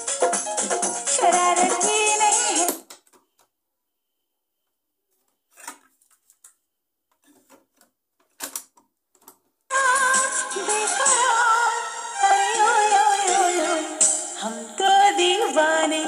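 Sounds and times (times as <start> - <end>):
film song with singing: 1.0 - 2.8, 9.7 - 16.0.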